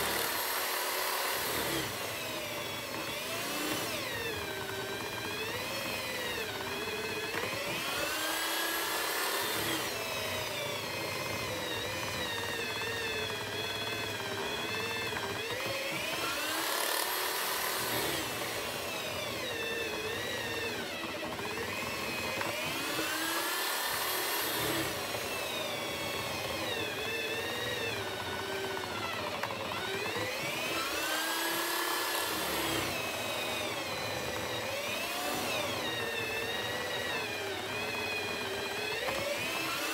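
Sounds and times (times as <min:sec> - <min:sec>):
electric drill boring into wood: 0:00.0 - 0:39.9.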